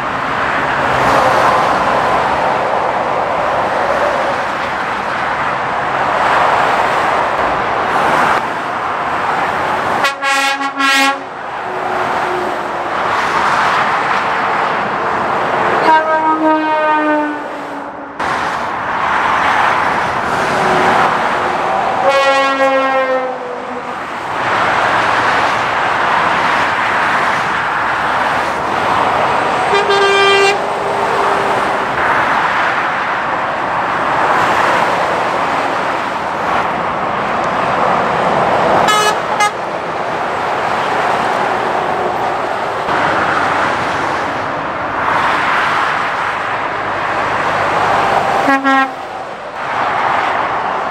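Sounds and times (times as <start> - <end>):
motorway traffic passing: 0.0 - 50.9
vehicle horn blasts: 10.0 - 11.3, 15.8 - 18.1, 22.0 - 23.7, 29.7 - 30.6, 38.9 - 39.6, 48.4 - 49.0.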